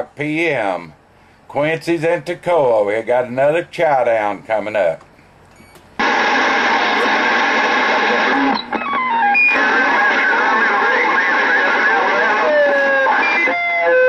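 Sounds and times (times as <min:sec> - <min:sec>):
short stepped beeps: 0:05.5 - 0:05.9
radio static with wavering tones: 0:06.0 - 0:14.0.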